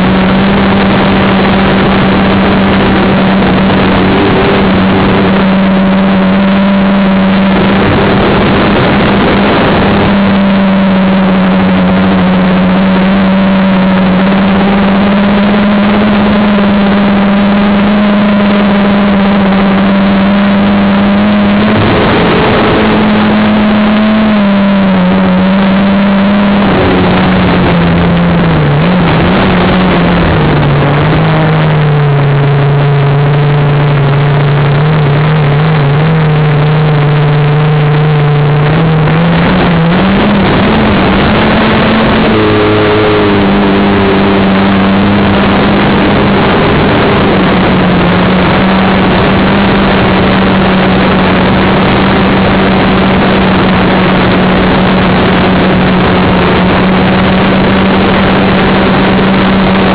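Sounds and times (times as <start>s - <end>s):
prop wash and wind: 0.0s - 59.9s.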